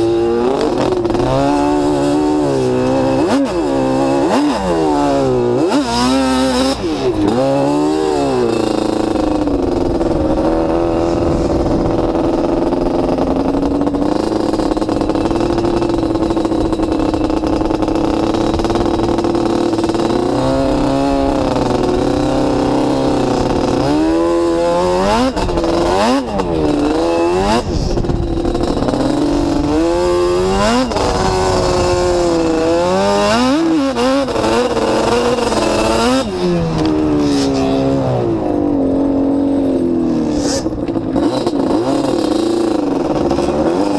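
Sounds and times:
atv engine revving: 0.0s - 43.9s
wind noise on microphone: 8.6s - 38.8s.

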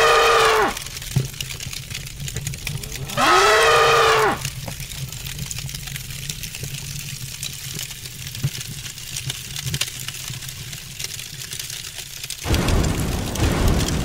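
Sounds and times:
irregular crackling: 0.0s - 14.0s
low rumble: 2.5s - 3.2s, 12.5s - 14.0s
loud boom: 12.5s - 14.0s.

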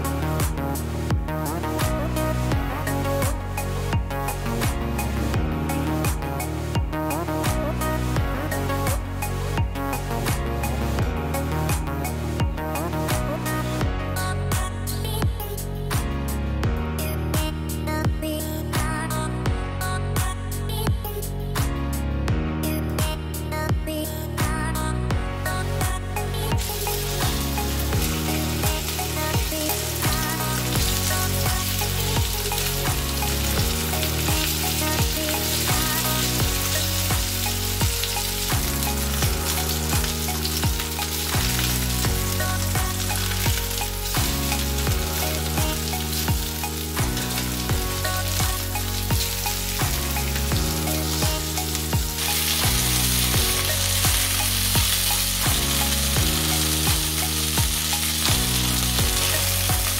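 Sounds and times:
background music with bass line: 0.0s - 59.9s
meat sizzling in frying pan: 26.4s - 59.9s.

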